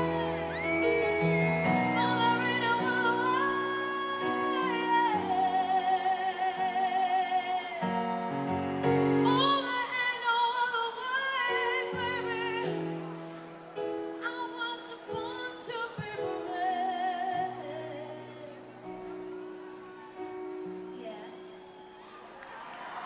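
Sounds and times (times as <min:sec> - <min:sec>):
woman singing with vibrato: 0:00.0 - 0:08.1, 0:09.2 - 0:13.0, 0:14.2 - 0:18.6.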